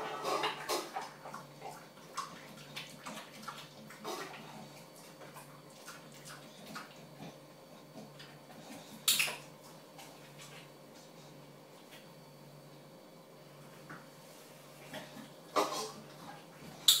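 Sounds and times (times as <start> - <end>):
dog eating from bowl: 0.0 - 11.2.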